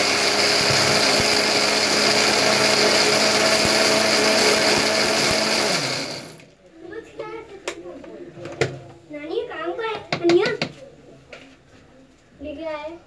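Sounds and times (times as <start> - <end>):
electric blender running: 0.0 - 6.5.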